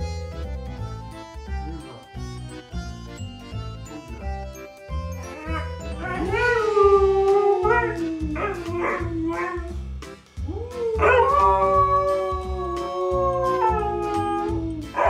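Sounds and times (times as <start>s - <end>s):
background music with steady beat: 0.0s - 15.0s
dog howling: 5.3s - 9.8s, 10.4s - 15.0s.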